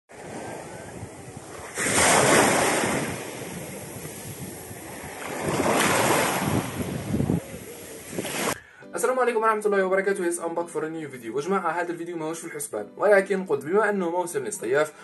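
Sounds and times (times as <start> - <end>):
small sea waves on sandy shore: 0.1 - 8.6.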